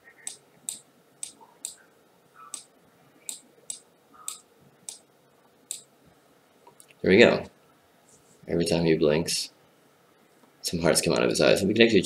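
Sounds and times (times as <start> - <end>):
computer mouse clicking: 0.2 - 1.8, 2.4 - 2.7, 3.3 - 5.0.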